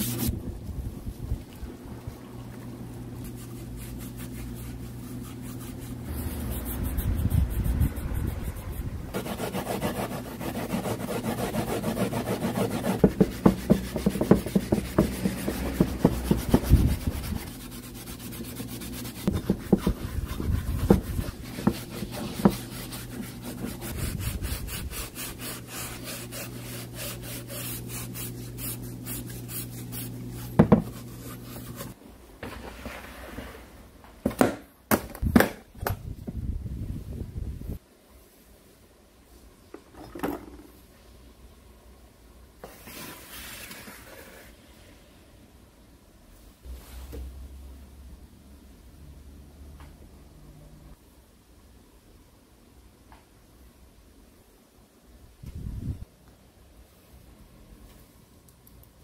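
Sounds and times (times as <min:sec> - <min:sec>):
steady low hum: 0:00.0 - 0:32.2
scouring pad scrubbing metal: 0:09.2 - 0:32.0.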